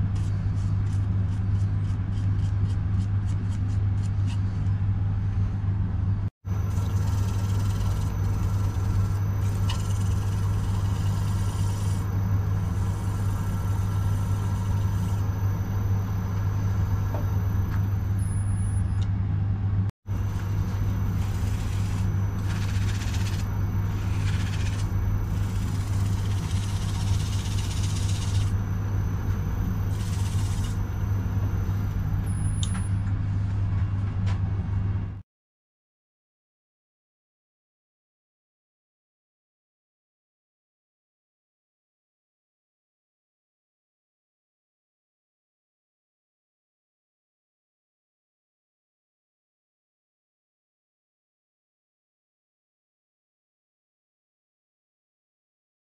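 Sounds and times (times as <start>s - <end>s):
rag hissing on spinning bowl: 6.7s - 12.0s, 20.6s - 28.6s, 29.7s - 30.8s
wood lathe motor humming: 6.7s - 15.4s, 20.2s - 28.6s, 29.2s - 32.0s.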